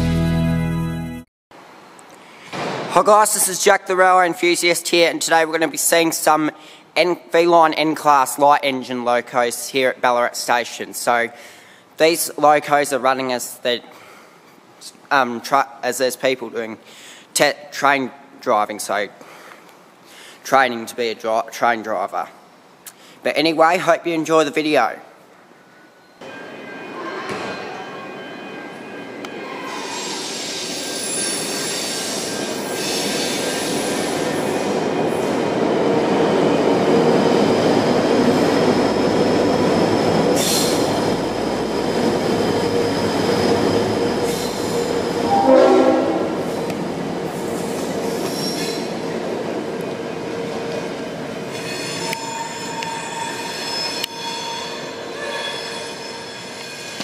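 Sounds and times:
diesel locomotive engine passing: 28.2 - 51.5
high wheel squeal: 29.4 - 34.7, 38.7 - 46.6, 47.4 - 49.0, 51.5 - 57.0
train horn blast: 45.3 - 46.5.

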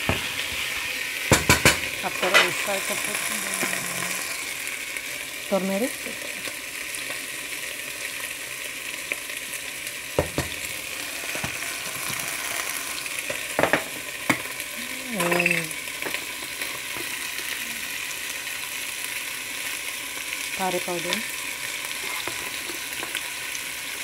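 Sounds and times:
chicken sizzling in hot oil: 0.0 - 24.0.

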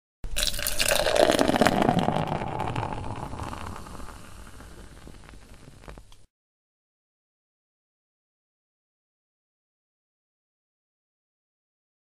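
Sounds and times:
beer being poured: 0.3 - 5.9.

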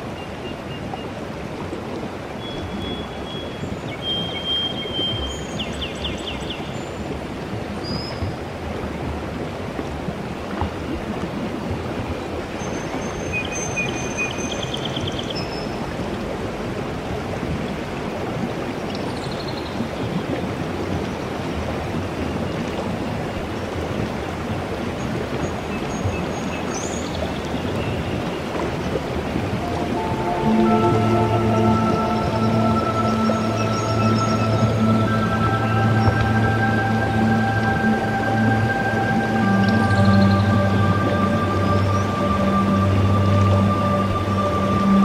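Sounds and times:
running water: 0.0 - 45.0
high chirps and trills: 29.6 - 45.0.

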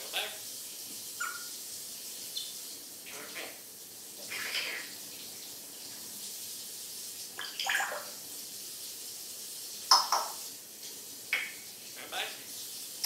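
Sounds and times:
parrot calling: 1.2 - 1.5, 4.3 - 4.9, 7.4 - 8.2, 9.9 - 10.4.

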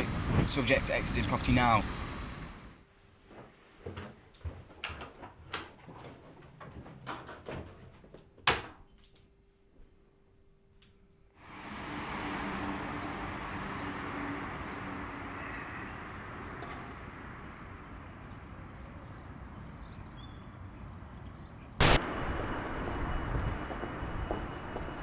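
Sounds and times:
steady rushing noise: 21.8 - 25.0.

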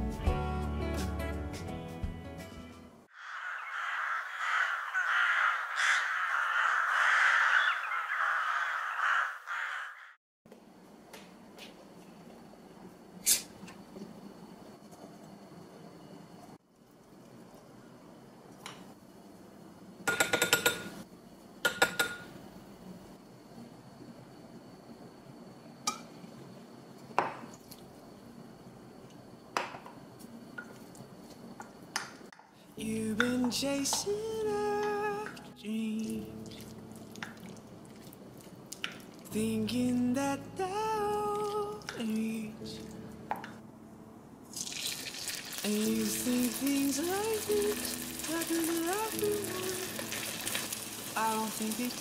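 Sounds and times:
crows cawing: 3.1 - 10.2.

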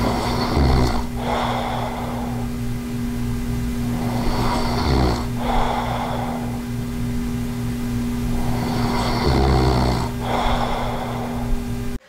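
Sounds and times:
man snoring: 0.0 - 2.7, 3.8 - 6.8, 8.2 - 12.0
noisy deep breaths: 0.0 - 12.0
steady low hum: 0.0 - 12.0.

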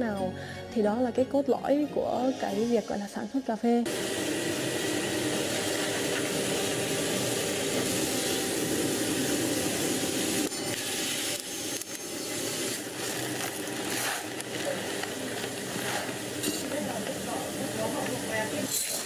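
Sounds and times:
coffee beans rattling and hissing: 3.9 - 19.0
coffee roaster running: 3.9 - 19.0.

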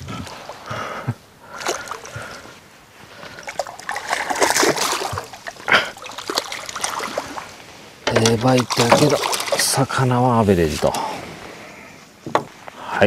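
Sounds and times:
fish splashing at water surface: 1.5 - 2.5, 3.2 - 10.0.

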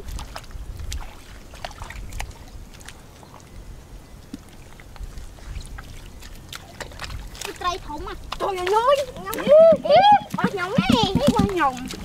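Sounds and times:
hands splashing in muddy water: 4.3 - 12.0.

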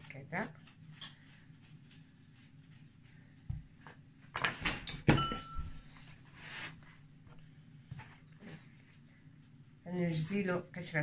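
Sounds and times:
ringing clink: 5.0 - 5.7.

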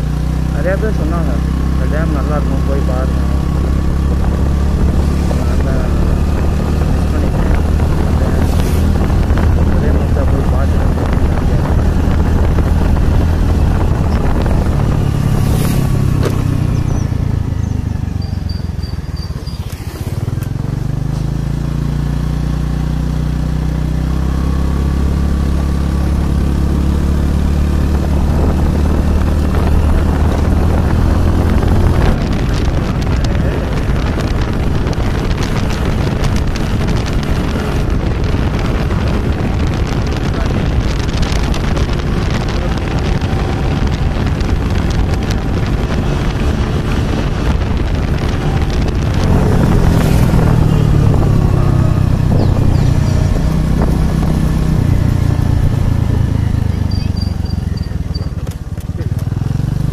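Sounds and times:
motorcycle engine cruising: 0.0 - 59.9
wind rushing over microphone: 0.0 - 59.9.

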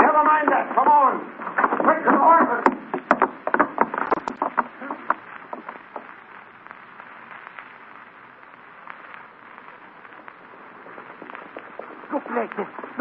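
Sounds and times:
old recording hiss and crackle: 0.0 - 13.0
sharp knocks: 1.4 - 6.1.

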